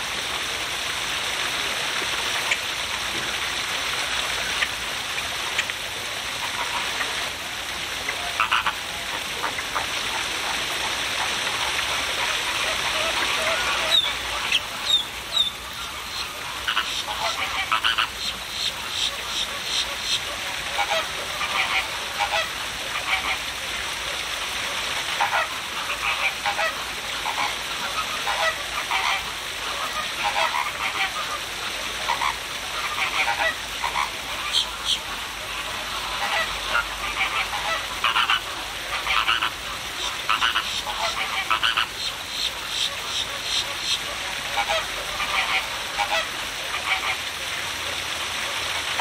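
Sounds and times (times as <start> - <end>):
waterfall splashing into pond: 0.0 - 49.0
flamingos honking: 8.1 - 10.5, 12.2 - 23.4, 25.2 - 31.4, 32.0 - 47.3.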